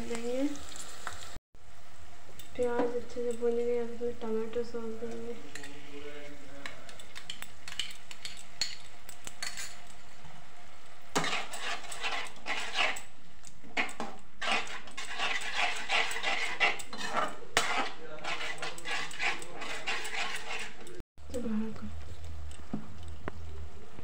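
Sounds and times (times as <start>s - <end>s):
vegetables sizzling in oil: 0.0s - 5.9s
metal spoon scraping a pan: 5.1s - 10.2s, 11.1s - 13.1s, 13.7s - 21.0s.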